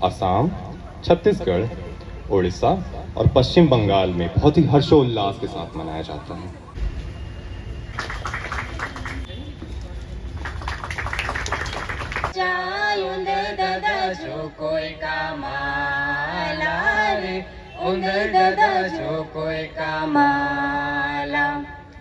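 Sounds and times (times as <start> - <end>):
dense noise: 6.6 - 9.3.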